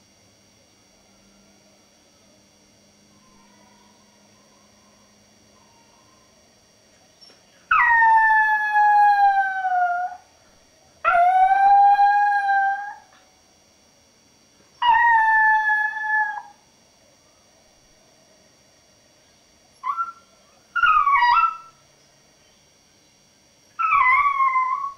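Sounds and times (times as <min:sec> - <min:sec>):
puppy howling: 0:07.7 - 0:10.2, 0:11.0 - 0:13.1, 0:14.8 - 0:16.6, 0:19.8 - 0:21.8, 0:23.8 - 0:24.9.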